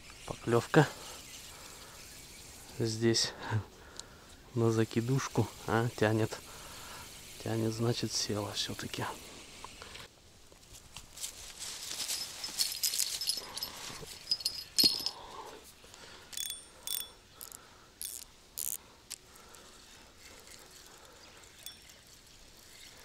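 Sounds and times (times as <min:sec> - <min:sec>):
fishing reel ratcheting clicks: 0:16.4 - 0:19.2.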